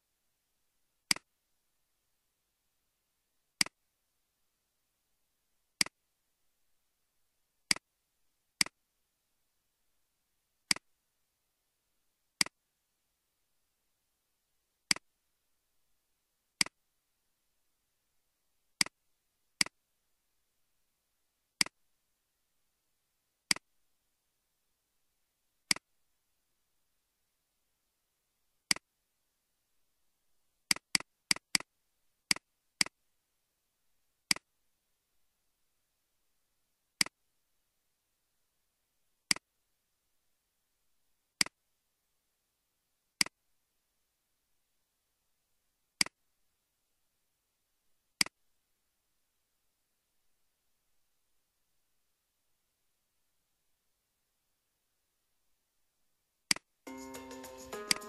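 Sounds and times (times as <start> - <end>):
computer mouse clicking: 30.7 - 31.7, 57.8 - 58.0.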